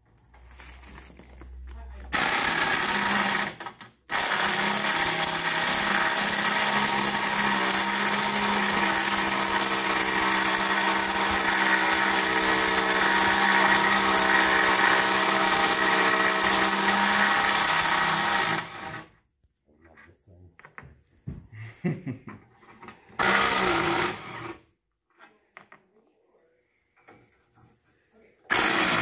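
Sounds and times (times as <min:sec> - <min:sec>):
cordless drill running: 0:02.1 - 0:19.1, 0:23.2 - 0:24.7, 0:28.5 - 0:29.0.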